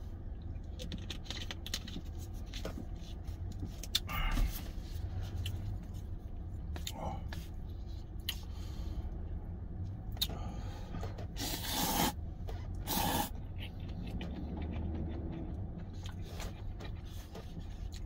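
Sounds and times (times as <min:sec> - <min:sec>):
low steady hum: 0:00.0 - 0:18.0
man slurping noodles: 0:11.4 - 0:12.2, 0:12.9 - 0:13.3.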